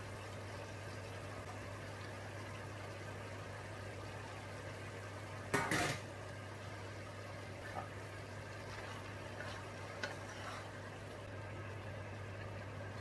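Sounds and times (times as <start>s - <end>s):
food sizzling in a frying pan: 0.0s - 13.0s
utensil clattering on pan: 5.5s - 6.1s.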